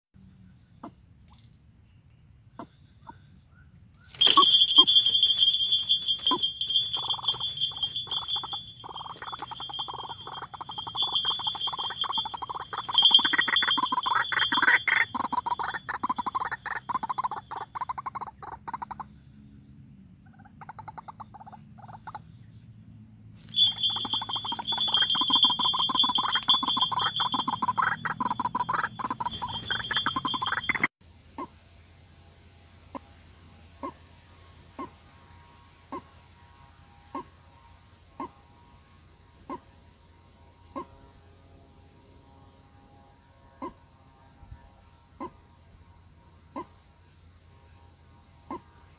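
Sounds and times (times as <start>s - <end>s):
waterhen calling: 4.1s - 19.0s, 23.4s - 31.5s.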